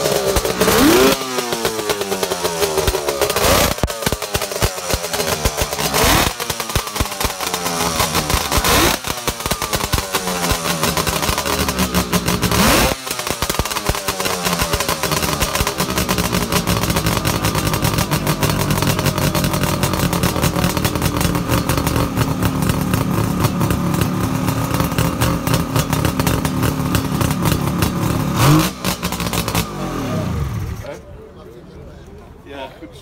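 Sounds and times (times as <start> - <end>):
motorcycle engine idling and revving: 0.0 - 31.3.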